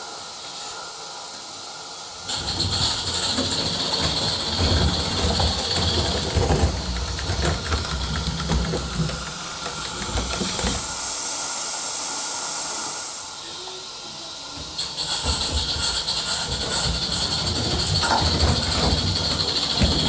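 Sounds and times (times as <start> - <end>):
model steam locomotive hissing: 0.0 - 20.0
wheels clicking over rail joints: 2.3 - 11.0, 14.8 - 20.0.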